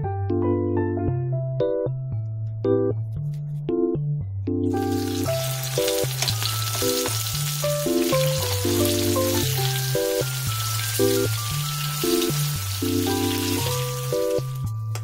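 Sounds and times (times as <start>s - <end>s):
tofu sizzling in a pan: 4.9s - 14.7s.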